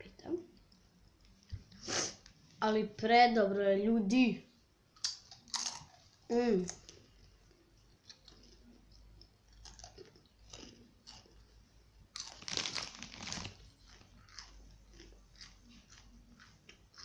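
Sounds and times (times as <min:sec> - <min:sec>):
chewing crunchy chips: 0:05.0 - 0:17.0
plastic chip bag rustling: 0:12.1 - 0:15.0.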